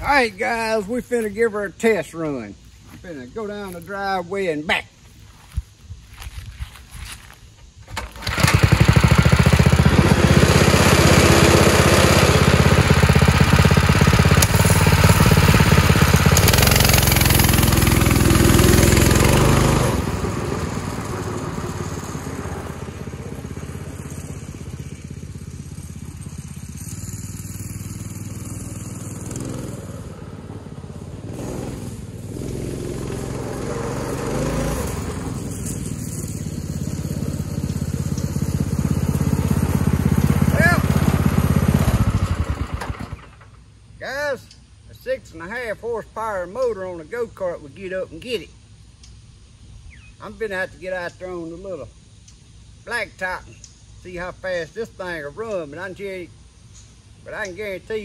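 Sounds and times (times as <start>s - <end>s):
go-kart engine running: 7.9s - 43.7s.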